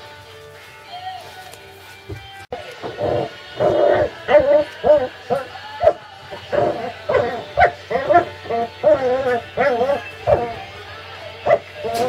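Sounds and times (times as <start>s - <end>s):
puppies whining and yipping: 2.8s - 10.7s, 11.4s - 12.0s.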